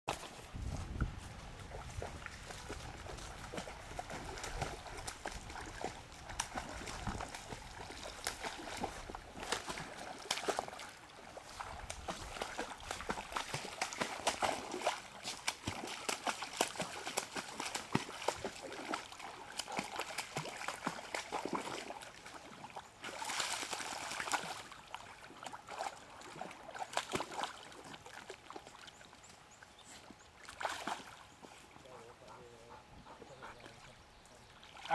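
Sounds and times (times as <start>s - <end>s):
running water: 0.1s - 34.9s
dog splashing in water: 1.6s - 28.6s, 30.4s - 31.2s.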